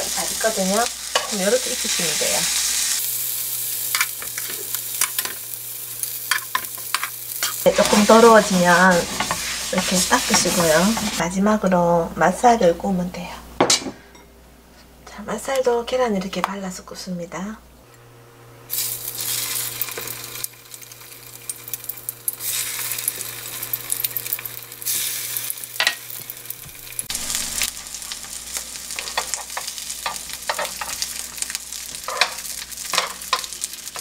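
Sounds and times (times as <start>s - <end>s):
food sizzling in frying pan: 0.0s - 11.2s, 18.7s - 34.0s.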